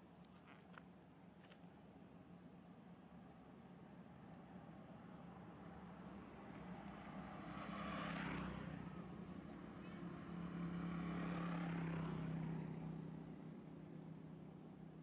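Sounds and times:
motor vehicles passing: 0:04.5 - 0:15.0.

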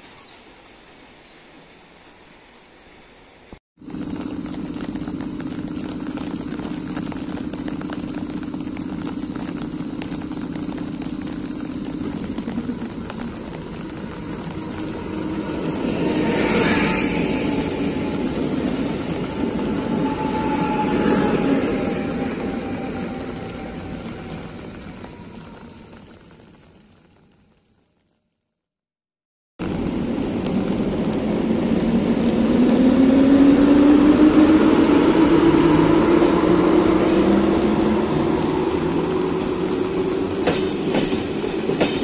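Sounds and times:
motor whine: 0:03.8 - 0:26.5
train wheels and motors rumbling: 0:03.8 - 0:27.8, 0:29.6 - 0:42.0.

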